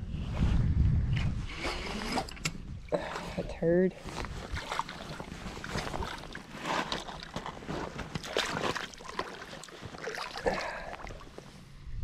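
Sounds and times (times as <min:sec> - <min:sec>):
water splashing at shoreline: 0:04.2 - 0:11.4
fish hitting water: 0:04.3 - 0:11.4.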